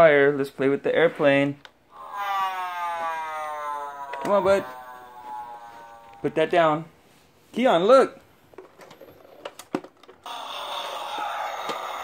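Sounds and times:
toy airplane engine hum: 10.3s - 12.0s.

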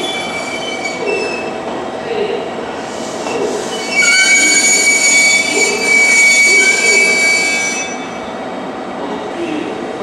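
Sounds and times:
train brakes squealing: 0.0s - 1.6s, 2.9s - 8.4s.

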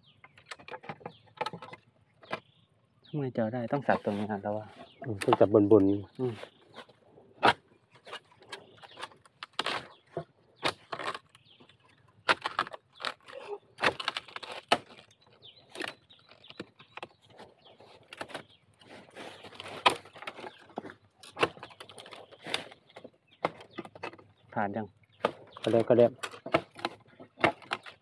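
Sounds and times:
rustling of stems and leaves: 3.6s - 28.0s
blade chopping into bamboo: 7.4s - 8.2s, 19.6s - 20.5s.

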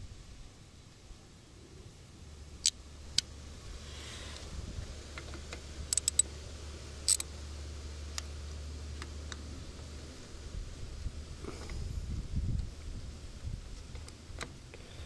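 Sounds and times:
low steady hum: 0.0s - 15.0s
hand ratchet clicking: 5.9s - 6.2s, 7.1s - 7.3s.

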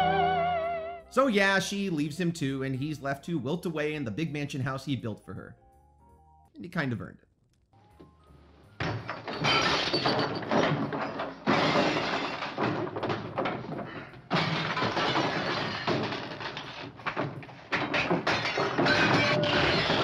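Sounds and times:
furniture crashing: 8.7s - 20.0s
glass breaking: 8.8s - 20.0s.

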